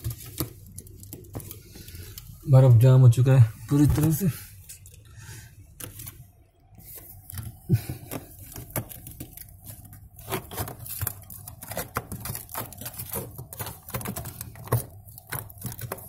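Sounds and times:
hand crinkling aluminium foil: 7.2s - 16.0s.

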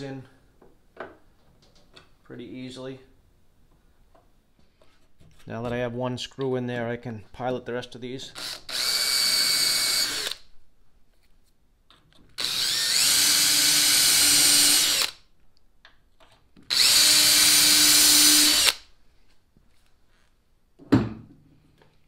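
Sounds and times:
cordless drill boring into decking: 8.4s - 10.4s, 12.4s - 15.2s, 16.7s - 18.8s.

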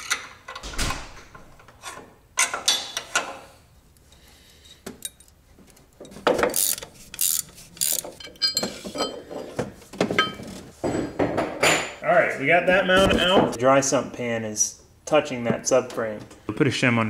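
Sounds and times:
wrench clinking on bolt: 6.0s - 9.2s
hand ratchet clicking: 6.5s - 8.2s.

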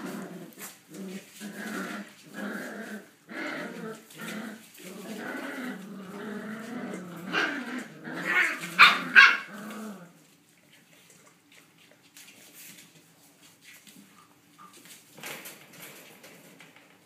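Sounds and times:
dogs growling in play: 0.0s - 11.6s.

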